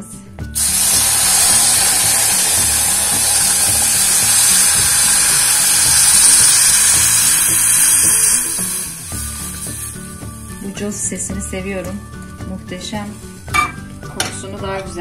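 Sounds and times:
syrup hissing on hot fat: 0.6s - 10.6s.

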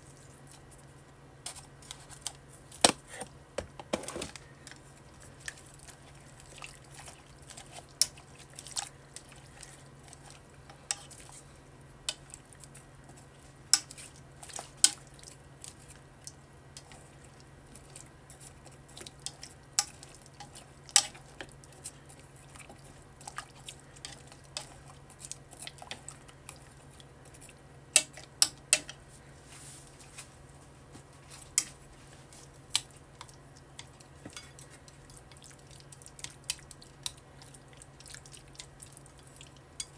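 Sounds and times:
chopsticks tapping a pot: 27.9s - 29.0s.

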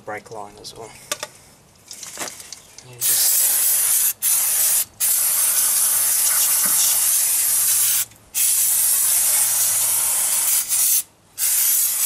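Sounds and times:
aerosol can spraying hiss: 3.0s - 12.0s.

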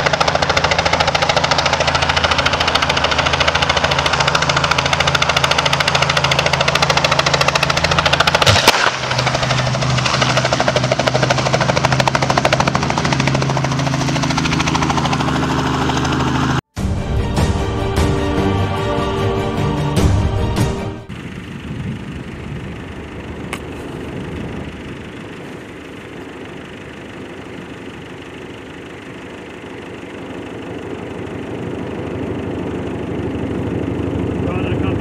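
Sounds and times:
helicopter rotor chopping: 0.0s - 35.0s
sharp crack on power lines: 7.2s - 12.0s.

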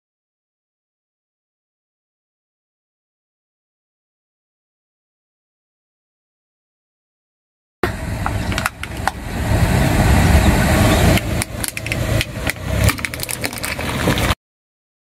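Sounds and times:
car rumble: 7.8s - 14.4s
toy cracking and crunching: 11.4s - 14.4s.

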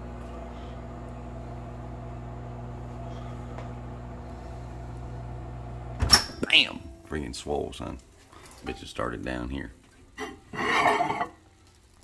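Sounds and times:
microwave oven humming: 0.0s - 7.3s.

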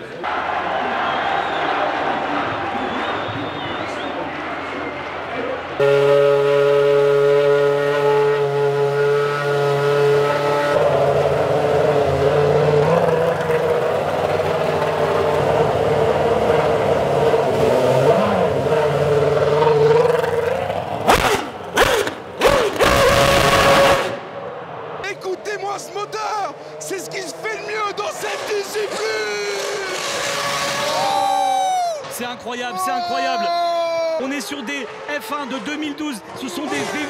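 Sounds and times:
racing car engine idling and revving: 2.2s - 31.3s, 34.3s - 37.0s
sharp engine rev blips: 2.8s - 24.4s, 28.2s - 31.2s.

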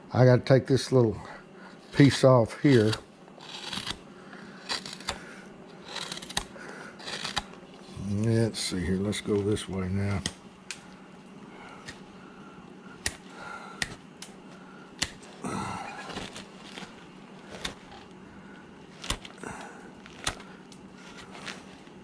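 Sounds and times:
knife snapping wood chips: 4.7s - 5.3s, 5.9s - 7.5s, 10.1s - 10.8s, 13.0s - 14.4s, 15.0s - 15.3s, 19.0s - 21.6s.

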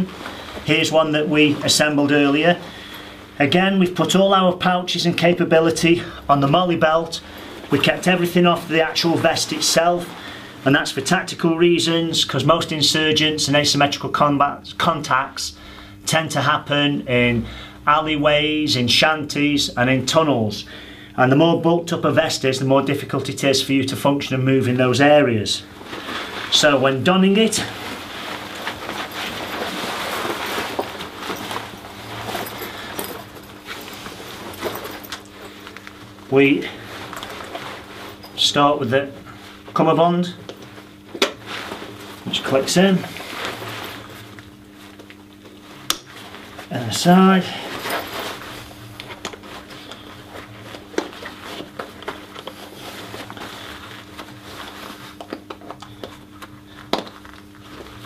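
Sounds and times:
nylon vest rustling and scraping: 0.0s - 4.1s, 7.3s - 11.2s, 25.6s - 58.0s.

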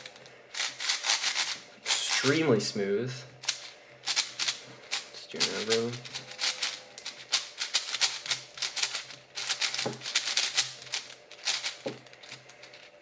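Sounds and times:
puzzle cube clicking: 5.4s - 11.8s.

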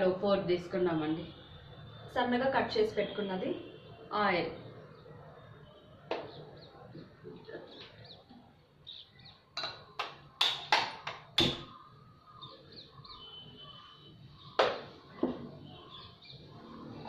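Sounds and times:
faint bird chirping: 4.6s - 9.5s, 11.7s - 14.6s
kitchen things knocking and clinking: 9.6s - 11.7s.

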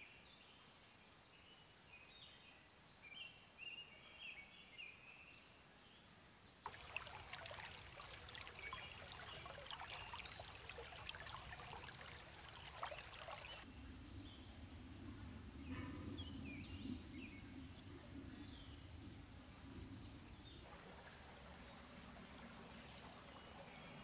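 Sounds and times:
bird calls: 6.7s - 13.6s
crackling trickling sound: 6.7s - 13.6s.

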